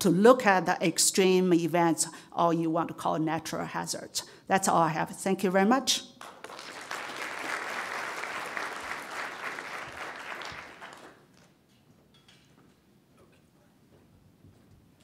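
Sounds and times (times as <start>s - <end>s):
audience applauding: 6.2s - 11.4s.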